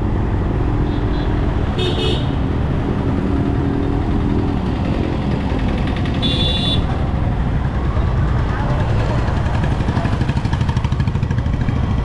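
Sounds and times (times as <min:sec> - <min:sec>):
motorcycle engine rumble: 0:00.0 - 0:12.0
motorcycle horn beep: 0:06.2 - 0:06.9.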